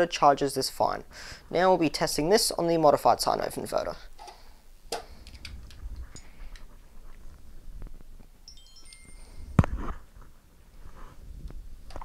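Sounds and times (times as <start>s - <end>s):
cable handling clicks and rustles: 4.2s - 8.3s.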